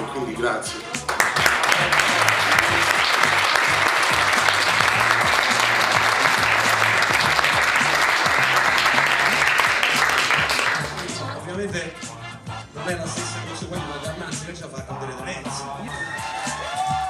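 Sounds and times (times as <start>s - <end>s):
background music: 0.0s - 17.0s
crowd applauding: 0.8s - 11.4s, 16.0s - 17.0s.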